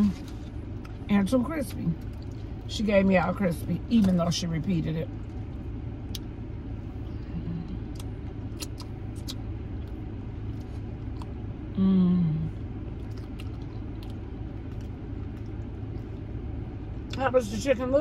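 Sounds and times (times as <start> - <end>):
low cabin hum: 0.0 - 18.0
person humming: 11.8 - 12.5
crunching fried chicken: 12.8 - 17.1.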